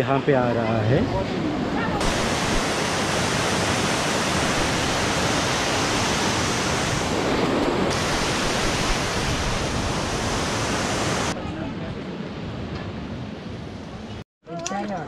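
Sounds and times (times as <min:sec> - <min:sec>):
river water rushing: 0:02.0 - 0:11.4.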